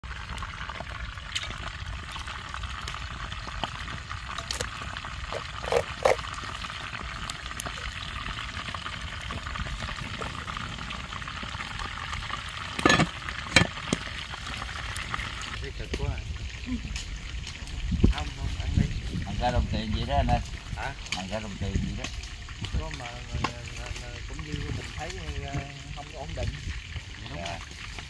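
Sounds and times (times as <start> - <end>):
chopsticks stirring rice in a pot: 5.3 - 6.2.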